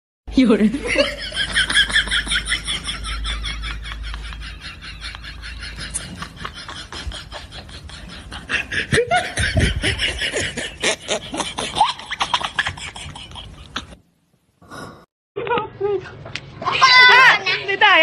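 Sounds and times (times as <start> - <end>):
people laughing: 0.8 - 14.0.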